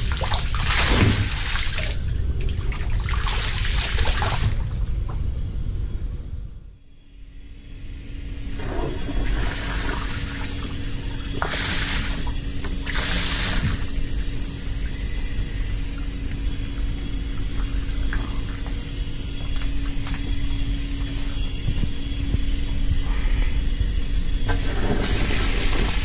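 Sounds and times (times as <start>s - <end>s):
faint steady hum: 0.0s - 26.0s
steam boiler blowdown hissing: 8.4s - 16.8s, 20.6s - 26.0s.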